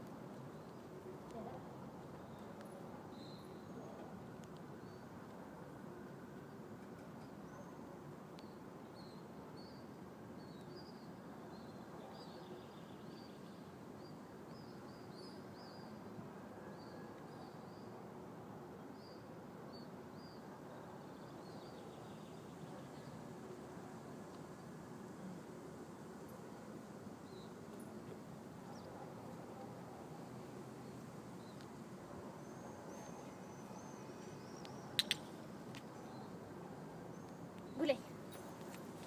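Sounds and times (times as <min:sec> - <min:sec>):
small birds chirping: 0:32.4 - 0:36.3.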